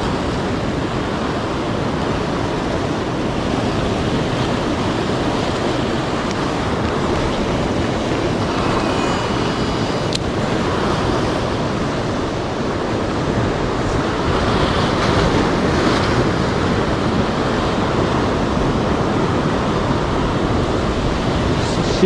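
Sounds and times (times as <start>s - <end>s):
surf breaking on rocks: 0.0s - 22.0s
wind on microphone: 0.0s - 22.0s.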